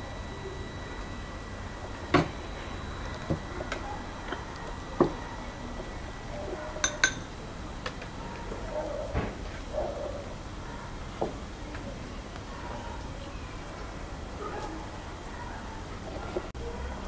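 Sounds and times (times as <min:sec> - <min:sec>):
kitchenware knocking and clinking: 0:06.8 - 0:07.3.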